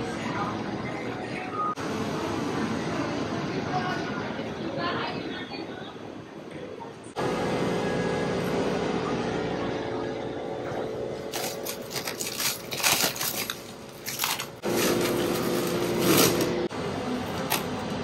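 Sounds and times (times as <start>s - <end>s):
steady hum: 0.0s - 18.0s
plastic bags crinkling: 11.3s - 16.6s.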